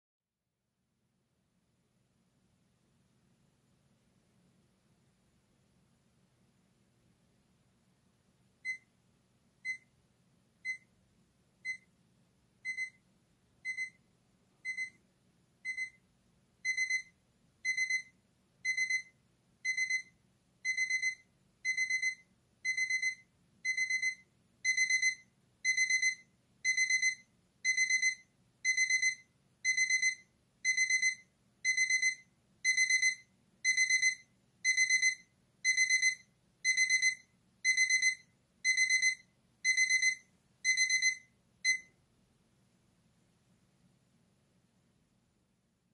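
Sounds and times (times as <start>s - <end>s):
alarm clock beeping: 11.6s - 11.9s, 12.6s - 13.0s, 13.6s - 14.0s, 14.6s - 15.0s, 15.6s - 16.0s, 16.6s - 41.9s.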